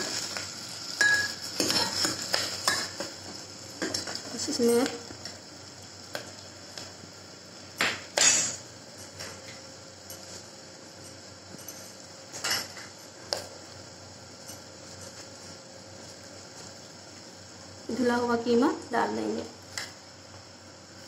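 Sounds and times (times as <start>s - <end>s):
spoon clinking on metal pot: 1.0s - 2.0s.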